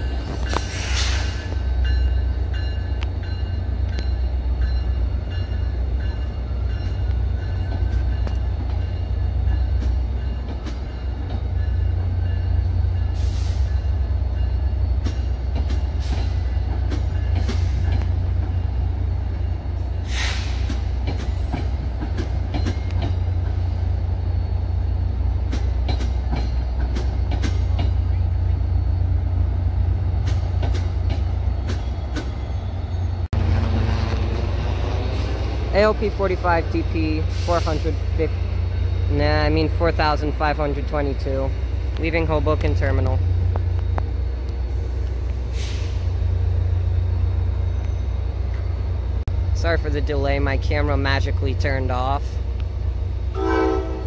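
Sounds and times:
train coaches rumbling: 0.0 - 54.0
wheels clicking over rail joints: 25.4 - 28.2.

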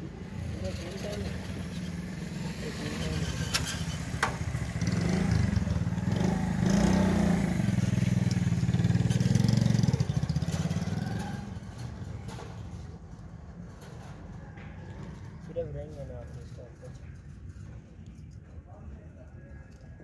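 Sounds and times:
passing motor vehicle engine: 0.0 - 15.6.

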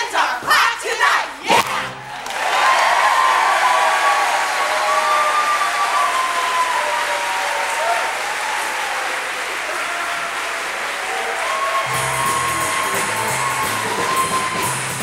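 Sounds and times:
audience applauding: 2.0 - 15.0
band music with bass and beat: 11.9 - 15.0.

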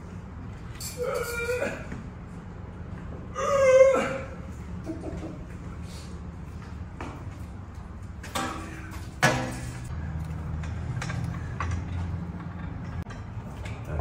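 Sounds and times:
metal knocks and clunks: 10.5 - 14.0.

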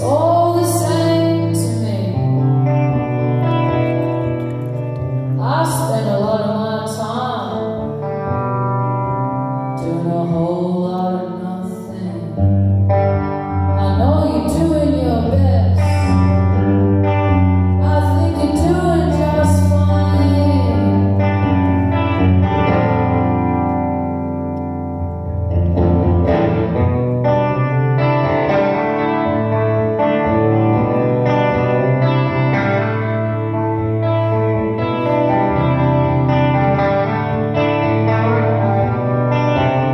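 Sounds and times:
woman singing: 0.0 - 2.7, 5.4 - 8.0, 9.8 - 12.6, 13.7 - 16.7, 17.8 - 21.6
echoing electric guitar: 0.0 - 39.9.

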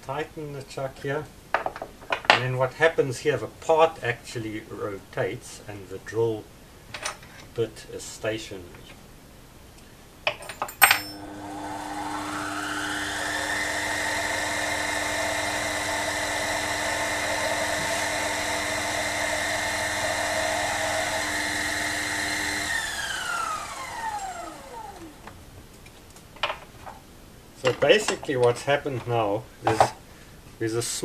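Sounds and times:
drill cutting brass: 11.1 - 25.2
lathe motor whine: 11.2 - 25.3.

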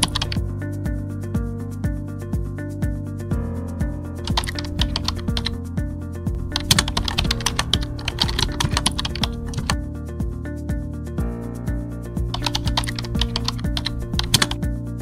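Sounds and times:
keyboard typing clicks: 0.0 - 0.4, 4.3 - 5.6, 6.5 - 9.8, 12.3 - 14.6
background music held notes: 0.0 - 15.0.

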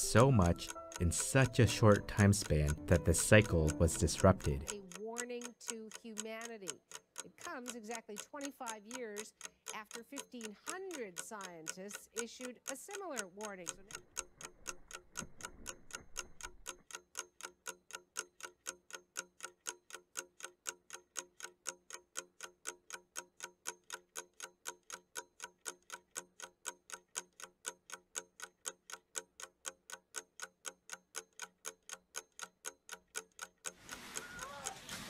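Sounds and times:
clock ticking: 0.0 - 35.0.

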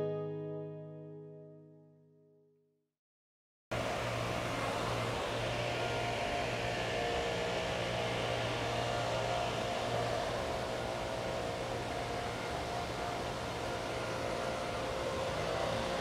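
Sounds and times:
leaf blowers running: 3.8 - 16.0.

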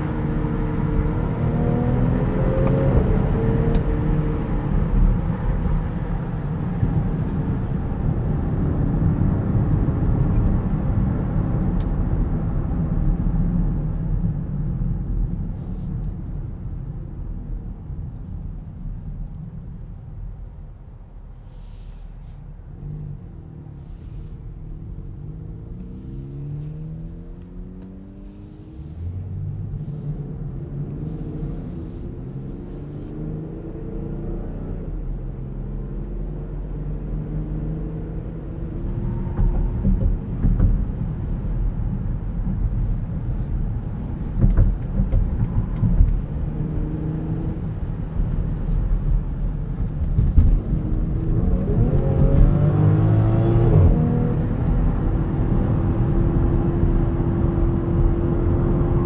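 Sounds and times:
car engine accelerating: 22.8 - 59.0
tyre and road rumble: 38.6 - 55.1.

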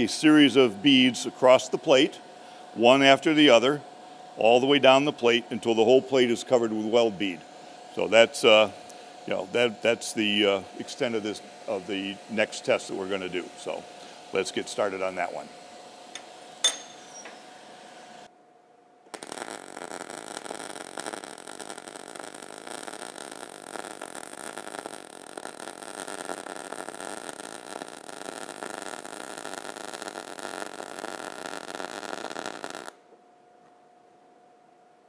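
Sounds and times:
welding arc crackling and sizzling: 0.0 - 2.2, 2.8 - 3.8, 4.4 - 18.3, 19.1 - 33.1.

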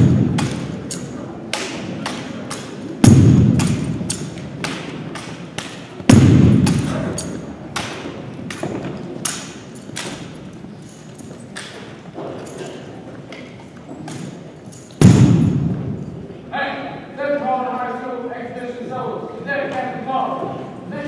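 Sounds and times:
heavy echoing rifle thumps: 0.0 - 0.8, 3.0 - 5.0, 6.0 - 7.2, 15.0 - 16.0.

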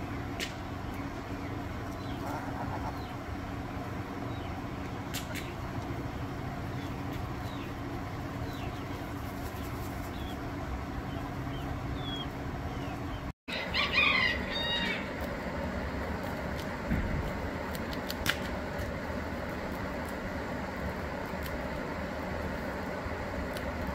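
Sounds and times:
low rumbling background: 0.0 - 13.3.

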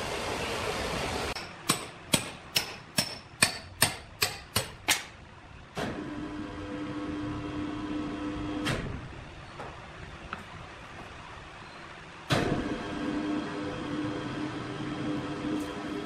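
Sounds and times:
quick hammer strikes: 1.4 - 5.2.

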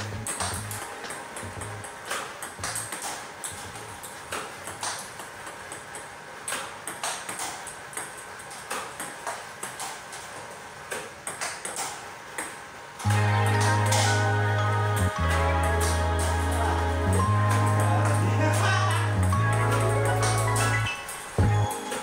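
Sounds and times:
table tennis ball clicks: 0.0 - 14.2.

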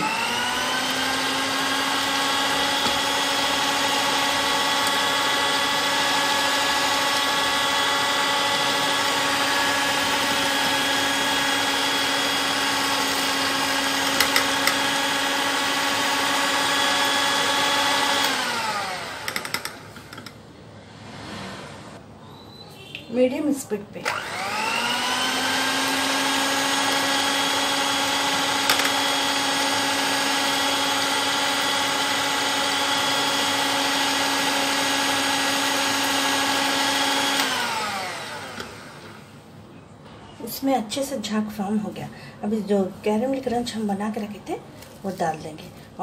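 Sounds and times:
electric hand mixer whining: 0.0 - 20.2, 24.1 - 39.4.

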